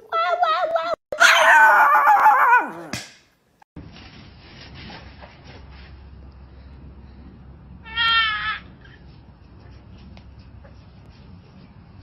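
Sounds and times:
small dog howling: 1.2 - 2.9.

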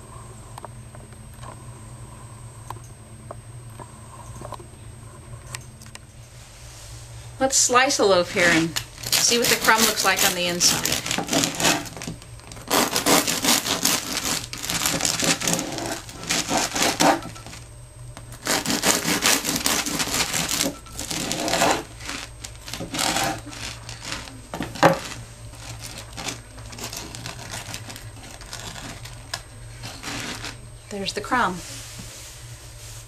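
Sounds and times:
bread knife sawing crusty loaf: 8.4 - 17.3, 18.4 - 29.2, 29.8 - 30.6
bread slices being handled: 18.5 - 29.2, 29.8 - 30.6.

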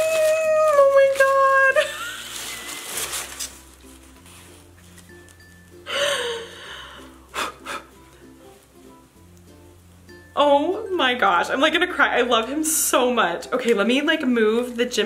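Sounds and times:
soft background music: 0.0 - 15.0
breathy gasps: 5.9 - 8.0.

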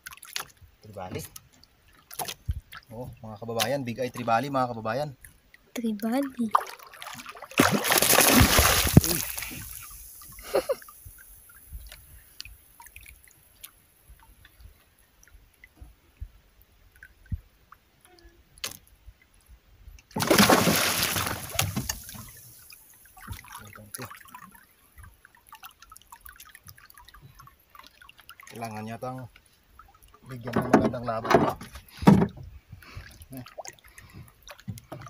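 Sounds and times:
fish thrashing and splashing: 6.5 - 10.0, 20.2 - 22.4
faint water drips: 8.9 - 20.2, 21.2 - 30.5, 32.6 - 35.0.

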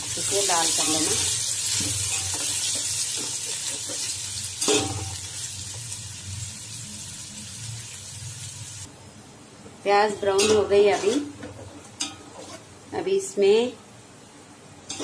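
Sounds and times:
onions sizzling in hot oil: 0.0 - 8.9.

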